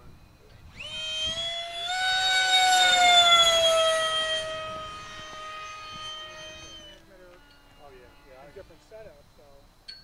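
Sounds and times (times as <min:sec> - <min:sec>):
model jet whine: 0:00.2 - 0:09.2.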